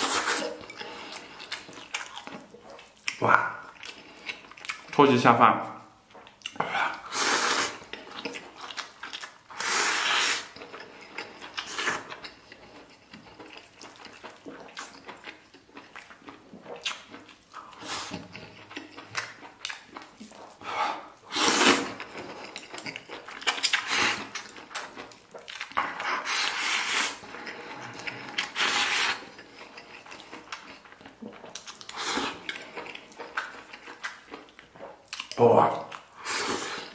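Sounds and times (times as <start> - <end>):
loud noodle slurps: 0.0 - 1.6, 7.0 - 7.9, 9.5 - 10.6, 20.4 - 22.1, 23.7 - 24.9, 25.8 - 29.4, 31.9 - 32.7, 36.2 - 36.9
wet chewing: 0.0 - 5.0, 6.0 - 36.9.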